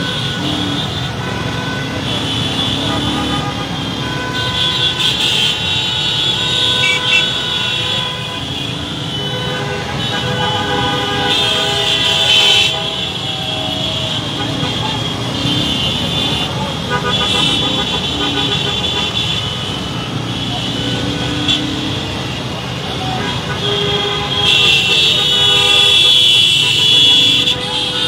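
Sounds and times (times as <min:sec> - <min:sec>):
engines running in traffic: 0:00.0 - 0:28.0
horns honking: 0:00.0 - 0:28.0
crowd voices: 0:11.4 - 0:25.4.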